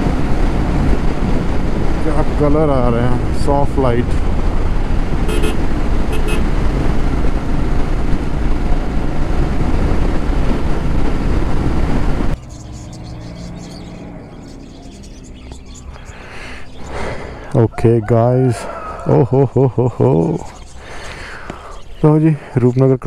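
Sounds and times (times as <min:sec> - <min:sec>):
wind rush: 0:00.0 - 0:12.4
motorcycle engine cruising: 0:00.0 - 0:17.5
horn toots: 0:05.2 - 0:06.6
faint birdsong: 0:12.4 - 0:23.0.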